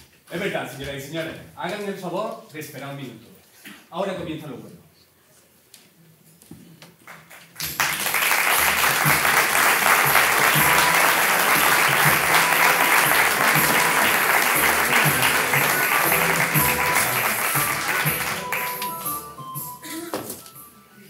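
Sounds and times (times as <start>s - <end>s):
audience applause: 7.3s - 19.5s
music with pulsing beat: 9.0s - 19.8s.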